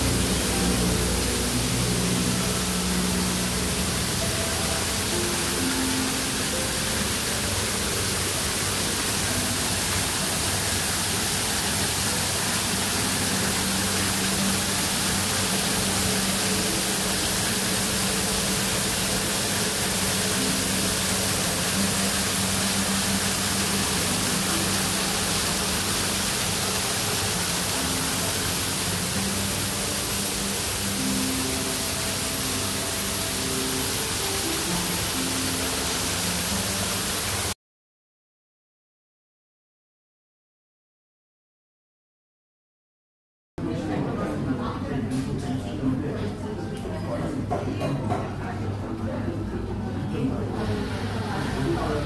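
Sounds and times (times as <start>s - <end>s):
water falling over rocks: 0.0s - 37.6s.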